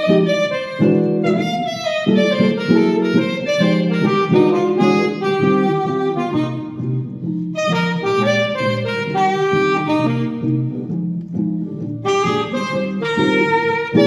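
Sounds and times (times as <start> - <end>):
alto saxophone jazz melody: 0.0 - 14.0
guitar accompaniment: 0.0 - 14.0.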